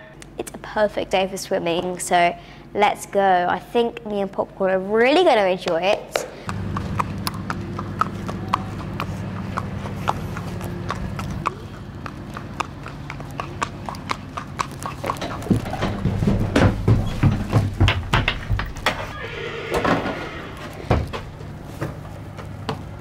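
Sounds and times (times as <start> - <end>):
steady low hum: 0.0 - 19.0, 20.4 - 23.0
hooves clip-clopping on paving: 5.2 - 19.2, 19.8 - 23.0
hollow hoof thuds on ramp: 14.6 - 19.1.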